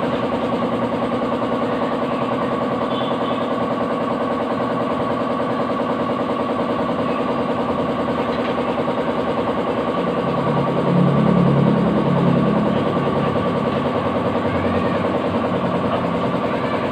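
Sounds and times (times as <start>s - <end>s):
motor-driven machine humming: 0.0s - 16.9s.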